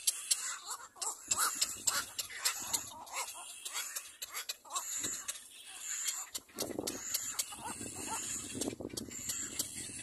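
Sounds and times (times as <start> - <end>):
sharp high clicks: 0.0 - 10.0
bird chicks whining cries: 4.7 - 10.0.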